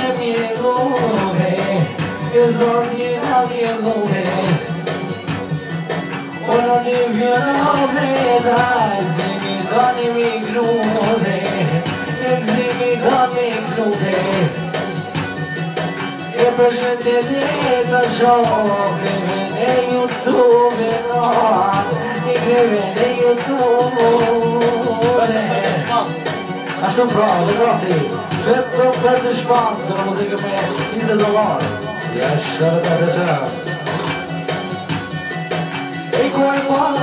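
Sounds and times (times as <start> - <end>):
man singing into microphone: 0.0 - 5.0, 6.3 - 14.9, 16.2 - 33.7, 36.1 - 37.0
amplified backing music: 0.0 - 37.0.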